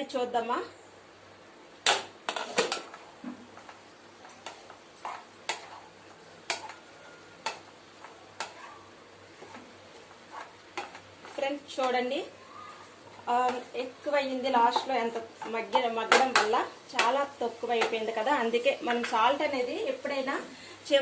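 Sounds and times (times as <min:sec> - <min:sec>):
wooden spatula scraping pan: 0:04.4 - 0:08.6, 0:09.4 - 0:11.5.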